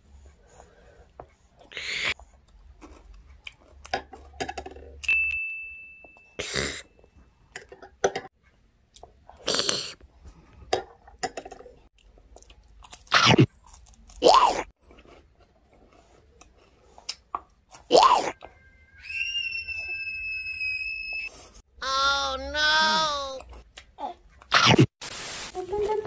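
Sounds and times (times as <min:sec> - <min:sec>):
person chewing and crunching: 0:02.2 - 0:05.0, 0:11.9 - 0:18.5.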